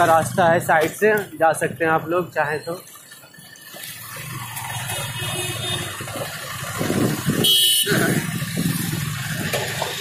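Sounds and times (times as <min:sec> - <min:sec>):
motorcycle engine: 0:02.4 - 0:10.0.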